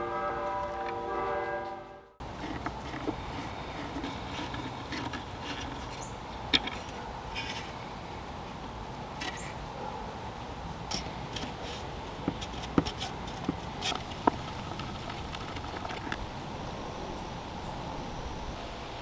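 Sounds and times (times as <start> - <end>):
wooden parts and screwdriver clicking: 2.2 - 7.7, 12.3 - 16.3.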